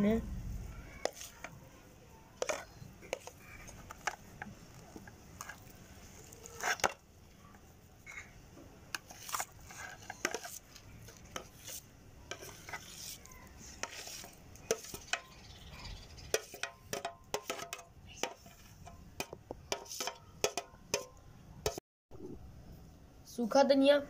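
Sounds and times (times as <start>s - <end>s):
plastic scraper scraping metal bowl: 1.0s - 1.5s, 2.4s - 4.5s, 6.4s - 7.0s, 9.0s - 15.2s.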